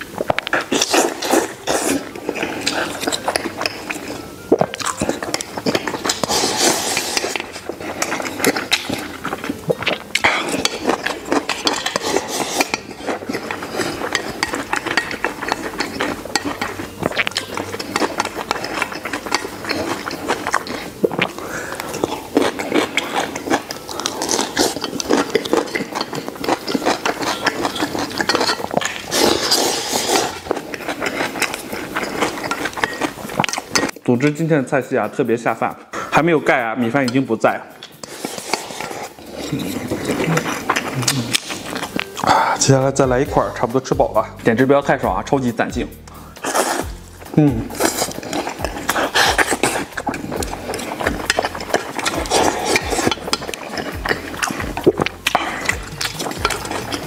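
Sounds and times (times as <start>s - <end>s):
close chewing of food: 0.0s - 34.2s, 35.9s - 44.4s, 46.0s - 57.0s
chopsticks clinking on steel bowl: 0.5s - 34.0s, 36.8s - 42.2s, 47.2s - 57.0s.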